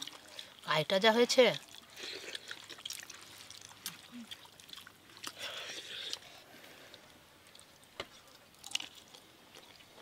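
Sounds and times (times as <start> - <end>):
person chewing food: 1.6 - 10.0.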